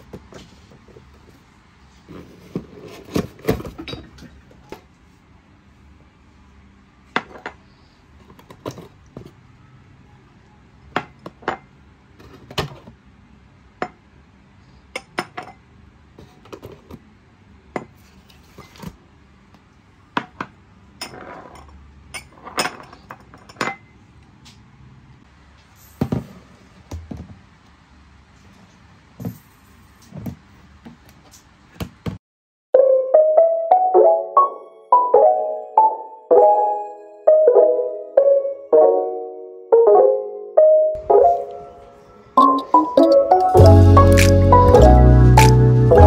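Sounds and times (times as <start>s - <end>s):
scraping or rustling: 0.2s - 3.8s.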